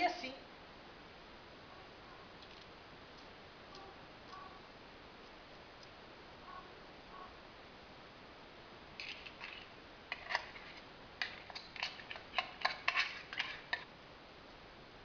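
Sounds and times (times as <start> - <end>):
metal tin clicking and tapping: 9.0 - 13.8.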